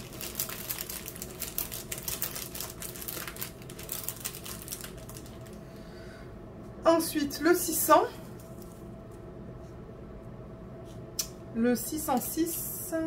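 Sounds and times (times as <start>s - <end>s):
plastic bags clicking and crinkling: 0.0s - 5.6s.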